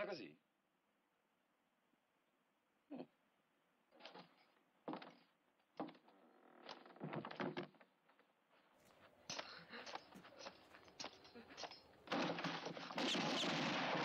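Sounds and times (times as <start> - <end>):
door creaking: 4.0 - 8.0.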